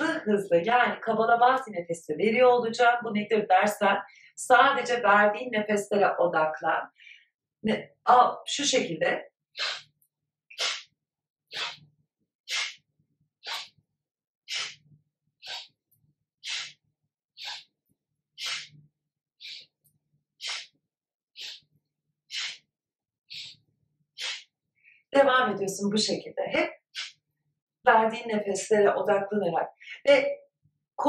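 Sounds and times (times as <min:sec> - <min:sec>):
woman exhaling sharply through nose: 0:09.6 - 0:09.9.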